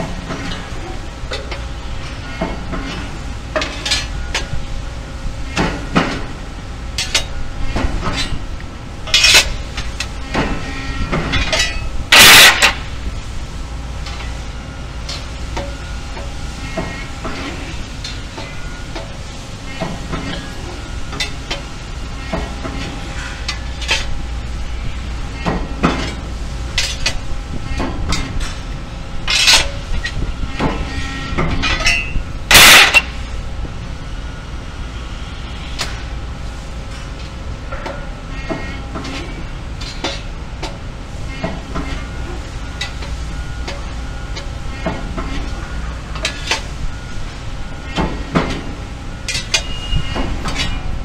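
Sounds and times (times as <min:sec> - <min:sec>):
factory machinery humming: 0:00.0 - 0:51.0
loud short noise burst: 0:12.1 - 0:12.9, 0:32.5 - 0:33.2
metallic clicks and clanks: 0:31.6 - 0:33.1.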